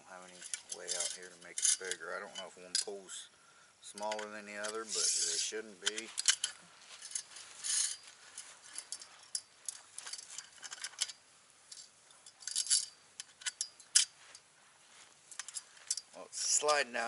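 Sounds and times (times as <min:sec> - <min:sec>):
metal scraping: 0:00.1 - 0:03.0, 0:03.9 - 0:14.4
metal poles clicking and clinking: 0:00.2 - 0:03.2, 0:03.9 - 0:14.5, 0:15.3 - 0:17.0.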